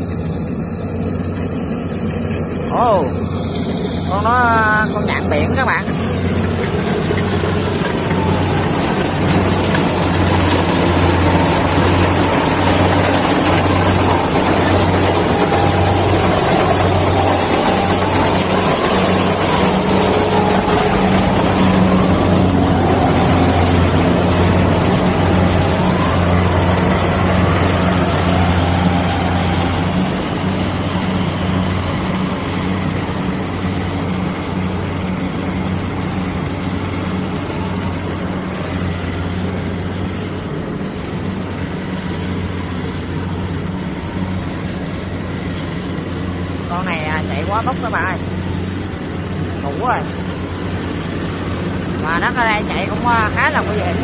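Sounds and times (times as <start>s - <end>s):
combine harvester diesel engine: 0.0s - 54.0s.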